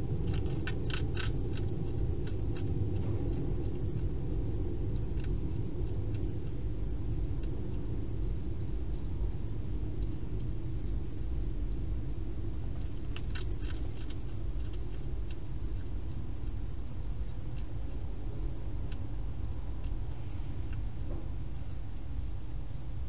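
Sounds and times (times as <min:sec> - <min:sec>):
hedgehog eating clicks and crunches: 0:00.0 - 0:21.8
steady low rumble: 0:00.0 - 0:23.0.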